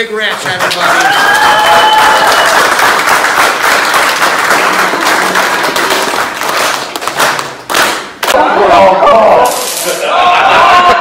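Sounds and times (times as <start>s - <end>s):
crowd applauding: 0.2s - 8.7s.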